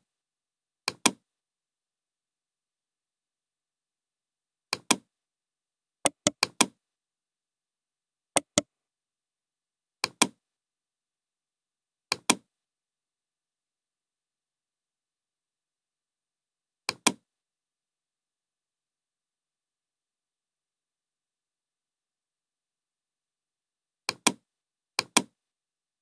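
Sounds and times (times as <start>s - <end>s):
computer mouse button clicks: 6.1s - 6.8s, 8.4s - 8.6s, 16.9s - 17.2s.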